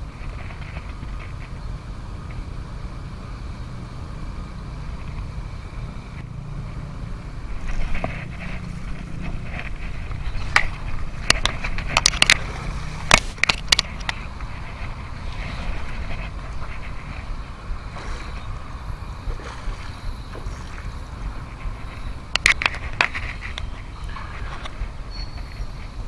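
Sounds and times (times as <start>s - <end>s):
wind rumble on microphone: 0.0s - 26.0s
fish splashing at surface: 17.8s - 21.8s.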